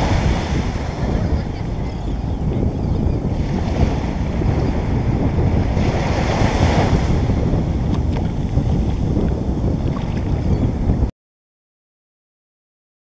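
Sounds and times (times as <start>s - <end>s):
ocean surf breaking: 0.0s - 11.1s
wind rumble on microphone: 0.0s - 11.1s.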